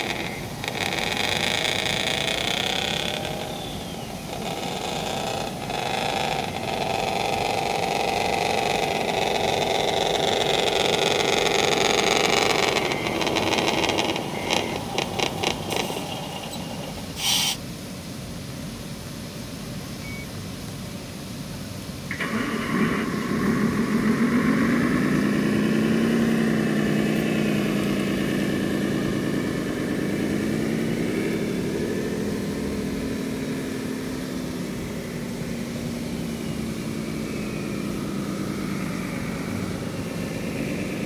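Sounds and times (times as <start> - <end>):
toy truck motor whine: 0.0 - 17.6, 22.1 - 35.5.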